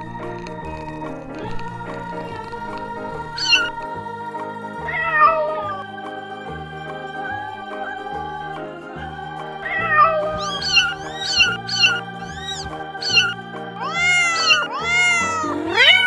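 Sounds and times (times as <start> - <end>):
kittens mewing: 3.2 - 3.7, 4.9 - 5.8, 9.6 - 16.0.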